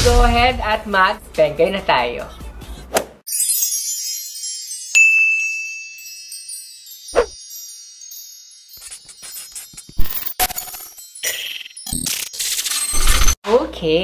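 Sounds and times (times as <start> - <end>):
shimmering high tinkle: 3.3 - 12.0
bright ringing ding: 4.9 - 6.5.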